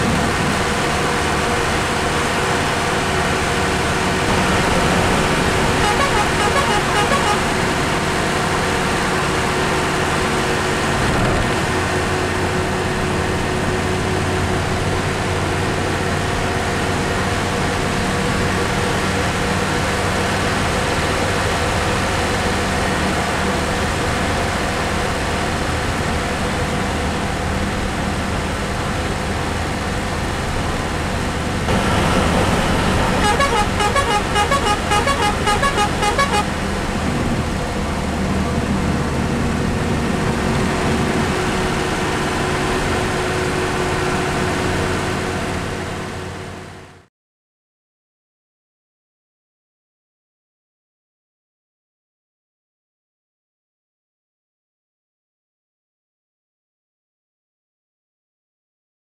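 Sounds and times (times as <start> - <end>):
lorry diesel engine running: 0.0 - 47.0
pulsing multi-tone horn: 4.3 - 8.0, 33.1 - 36.6.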